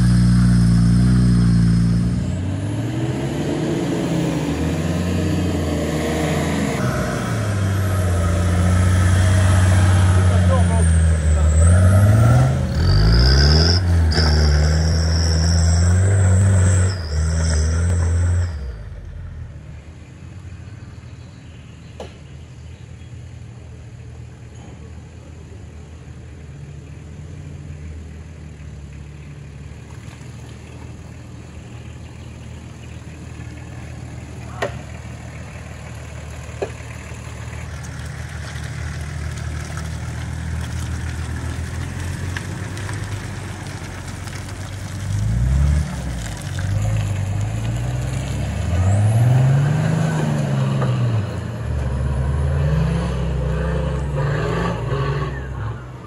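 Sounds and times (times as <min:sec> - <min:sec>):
engine revving hard: 0:00.0 - 0:18.4, 0:48.3 - 0:55.8.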